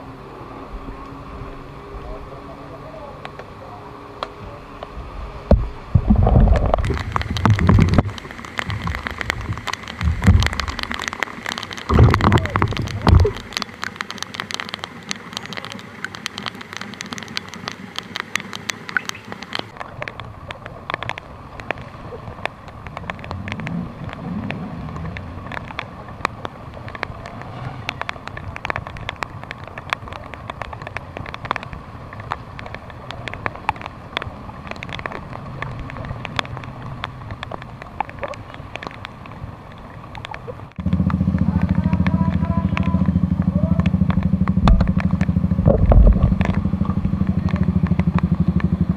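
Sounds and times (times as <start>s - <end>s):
rain hissing on wet ground: 0.0s - 48.9s
traffic passing: 0.0s - 48.9s
rain ticking on camera: 0.1s - 48.9s
motorcycle engine running: 40.8s - 48.9s.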